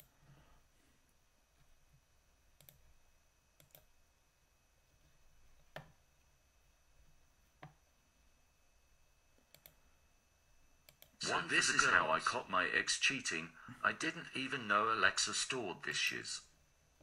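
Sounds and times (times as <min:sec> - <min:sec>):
computer mouse clicks: 0:02.6 - 0:02.8, 0:03.6 - 0:03.9, 0:09.4 - 0:09.8, 0:10.8 - 0:11.2.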